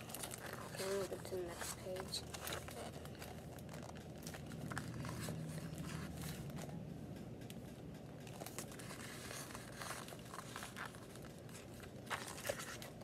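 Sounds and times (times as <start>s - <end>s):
paper pages flipping: 0.0s - 6.8s, 8.3s - 13.0s.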